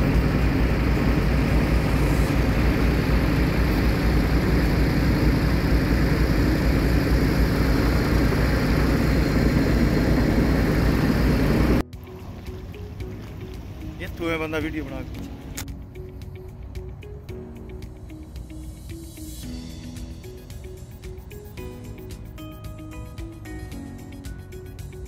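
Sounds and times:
pump running with low hum: 0.0s - 14.2s, 19.9s - 25.0s.

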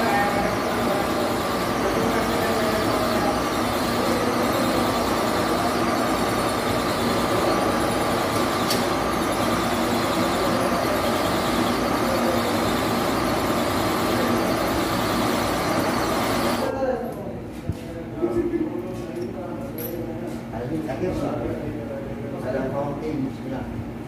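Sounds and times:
lathe running with whine: 0.0s - 16.7s.

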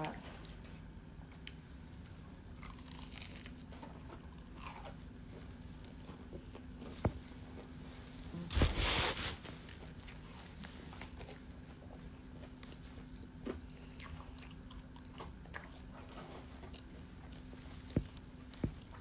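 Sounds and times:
person chewing food: 1.3s - 6.9s, 9.6s - 19.0s.

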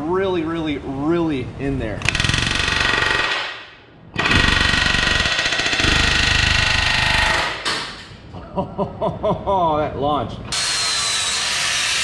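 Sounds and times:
pneumatic air hammer rattling: 2.0s - 3.6s, 4.2s - 8.2s.

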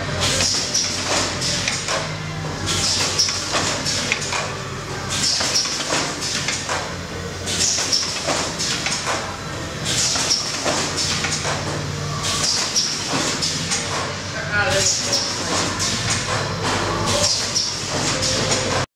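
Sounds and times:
low machine hum: 0.0s - 18.8s
pneumatic machinery clicks and knocks: 5.1s - 14.2s.

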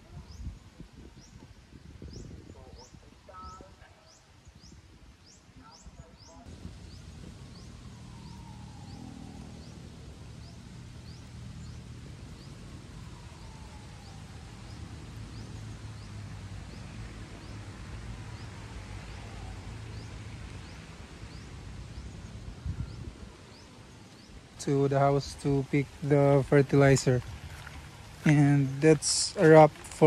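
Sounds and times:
slow falling whistle: 7.3s - 10.6s.

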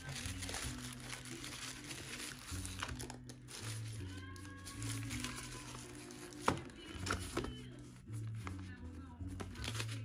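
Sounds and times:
plastic bags crinkling: 0.0s - 6.5s
background music: 0.0s - 10.0s.

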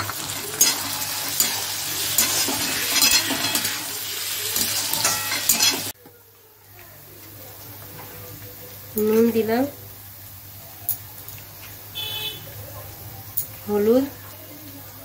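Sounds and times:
metal spatula scraping pan: 0.0s - 6.0s
vegetables sizzling in hot oil: 0.0s - 15.0s.

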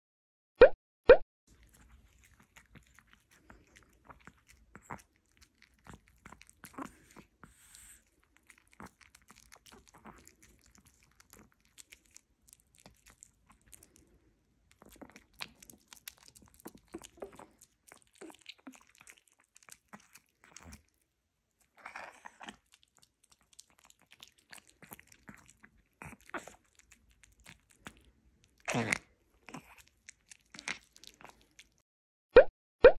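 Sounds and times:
dog chewing a treat: 1.5s - 21.1s, 21.7s - 28.7s, 29.3s - 31.8s.

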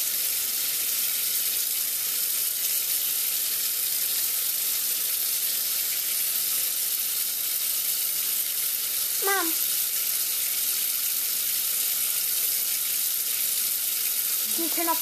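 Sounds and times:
faucet water splashing into sink: 0.0s - 15.0s.

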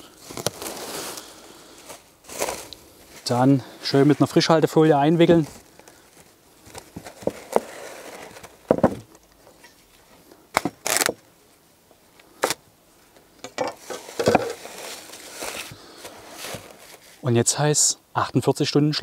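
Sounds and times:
cling film crinkling: 0.0s - 11.2s, 13.8s - 17.2s.

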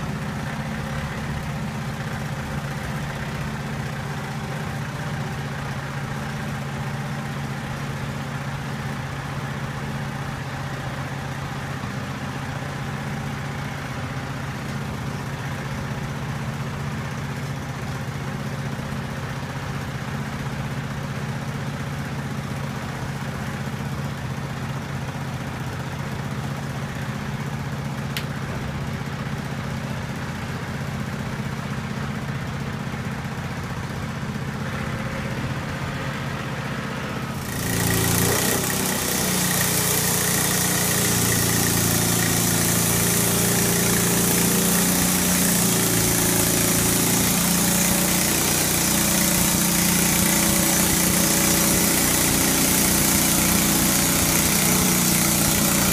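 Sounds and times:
sawmill engine: 0.0s - 55.9s
band saw blade hissing: 37.4s - 55.9s.

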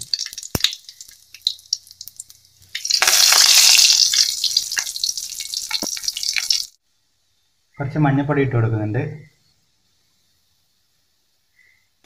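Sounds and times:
leaves sizzling in oil: 0.0s - 6.8s
seeds popping in hot oil: 0.0s - 6.8s.

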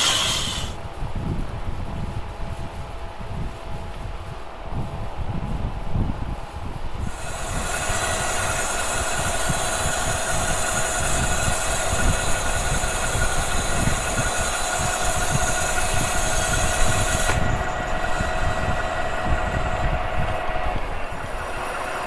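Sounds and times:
hissing metal cutting noise: 0.0s - 0.8s, 7.0s - 22.0s
lathe humming: 0.0s - 0.8s, 7.0s - 22.0s.

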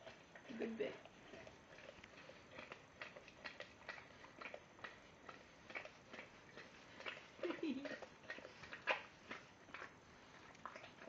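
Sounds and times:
dog licking plastic pot: 0.0s - 11.0s.

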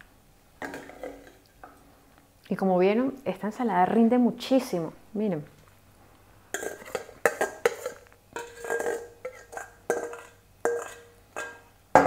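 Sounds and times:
spoon knocking metal bowl: 6.6s - 12.0s.

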